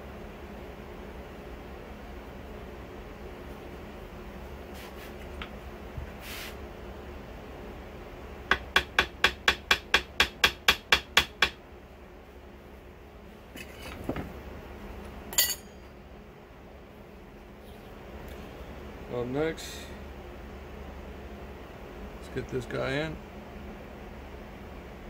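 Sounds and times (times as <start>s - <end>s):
hammer tapping on metal: 8.5s - 11.6s
sharp metallic clink: 15.3s - 15.9s.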